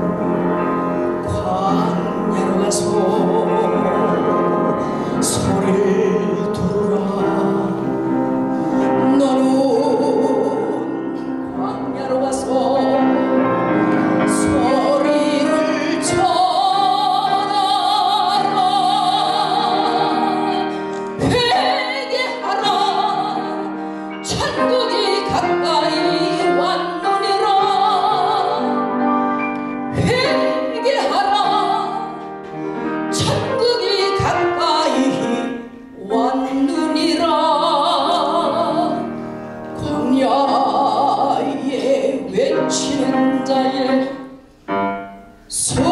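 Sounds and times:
piano accompaniment: 0:00.0 - 0:45.9
woman singing into microphone: 0:01.2 - 0:07.9, 0:08.8 - 0:13.5, 0:14.2 - 0:29.1, 0:29.9 - 0:32.4, 0:33.1 - 0:39.2, 0:39.8 - 0:44.4, 0:45.5 - 0:45.9.

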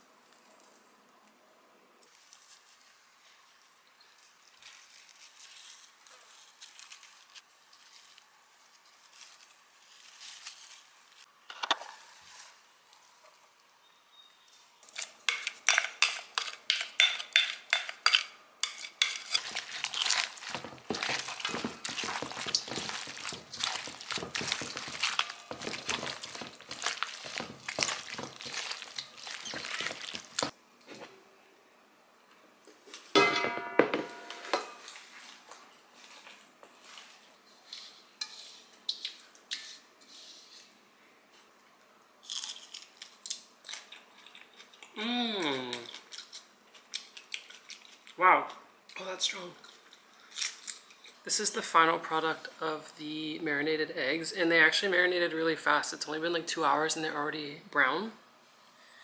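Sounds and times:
utensil scraping metal bowl: 0:15.0 - 0:30.5.

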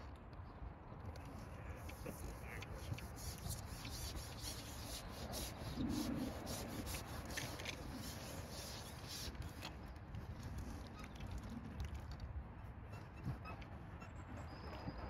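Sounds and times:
fishing pole scraping against hands: 0:01.3 - 0:09.7.

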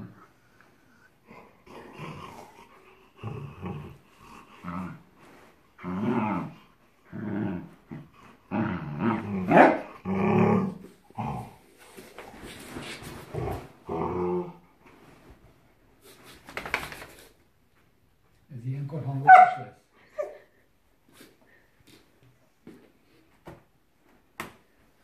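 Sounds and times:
dogs growling: 0:01.2 - 0:05.2, 0:05.8 - 0:11.8, 0:13.2 - 0:14.8.

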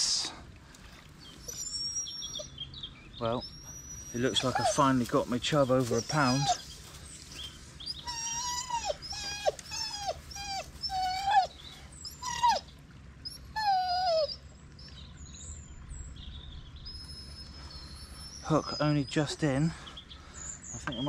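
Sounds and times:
dog whining: 0:01.4 - 0:02.6, 0:03.3 - 0:05.1, 0:05.9 - 0:06.8, 0:07.8 - 0:15.0, 0:16.9 - 0:18.8.

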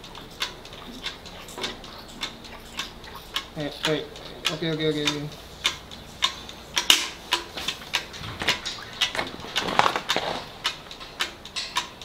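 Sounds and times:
calf sucking milk: 0:00.0 - 0:06.4, 0:07.2 - 0:11.8.

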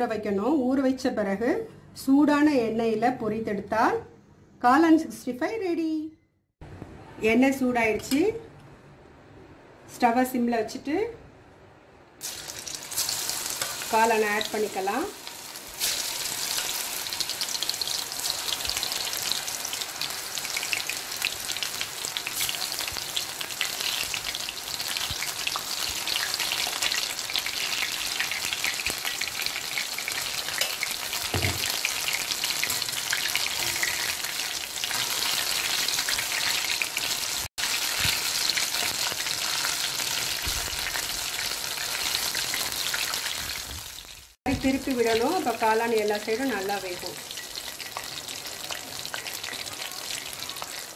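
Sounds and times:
food deep-frying in hot oil: 0:12.2 - 0:50.9.

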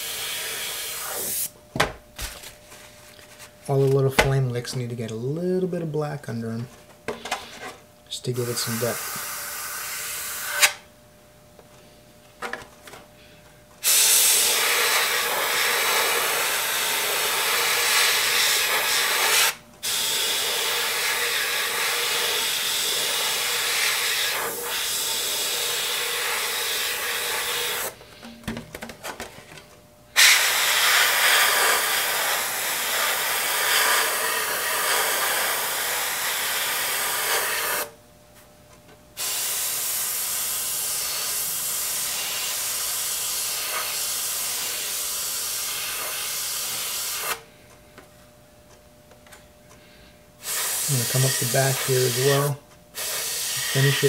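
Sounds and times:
airbrush hissing: 0:00.0 - 0:01.5, 0:08.4 - 0:10.8, 0:13.8 - 0:28.0, 0:30.2 - 0:37.9, 0:39.2 - 0:47.4, 0:50.4 - 0:54.0.

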